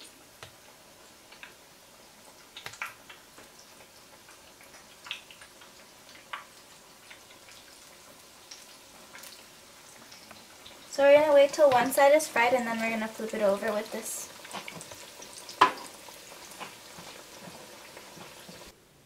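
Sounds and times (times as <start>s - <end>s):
frying sizzle with pops: 0.0s - 18.8s.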